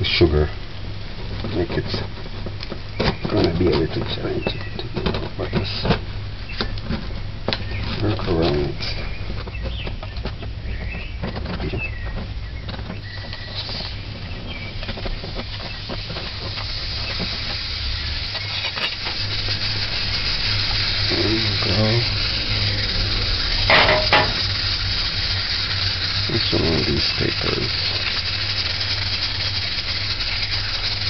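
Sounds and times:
steady hiss: 0.0 - 31.0
metal pan and china plate clatter: 23.7 - 24.4.

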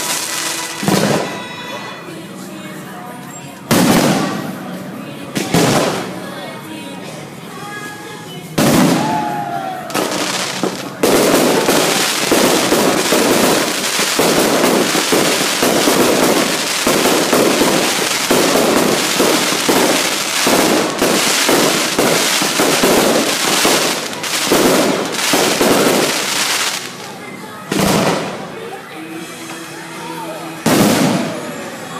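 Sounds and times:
fireworks bursting and crackling: 0.0 - 1.6, 3.7 - 4.6, 5.4 - 6.2, 8.6 - 28.6, 30.6 - 31.6
firework bang: 0.8 - 1.4, 9.9 - 26.6, 27.7 - 28.4.

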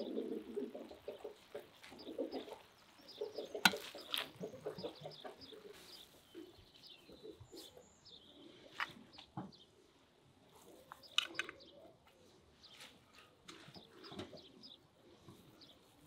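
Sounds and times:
domestic birds calling: 0.0 - 16.0.

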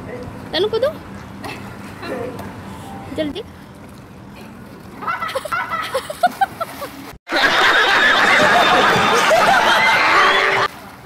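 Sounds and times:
audience laughter: 7.3 - 10.7.

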